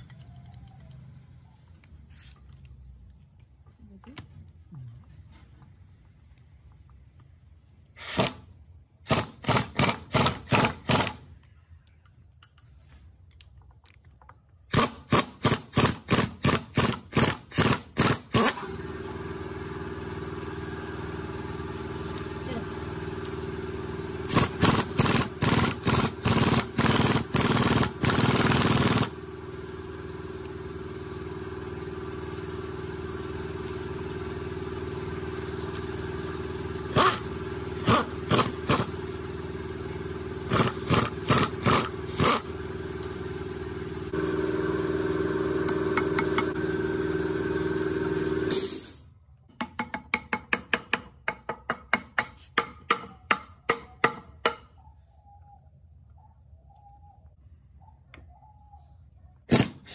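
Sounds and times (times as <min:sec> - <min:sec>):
steady mechanical hum: 0:00.0 - 0:59.9
impact wrench hammering: 0:09.0 - 0:11.2, 0:14.7 - 0:18.6, 0:24.2 - 0:29.3, 0:36.9 - 0:39.0, 0:40.4 - 0:43.2, 0:45.6 - 0:46.6, 0:49.5 - 0:54.7.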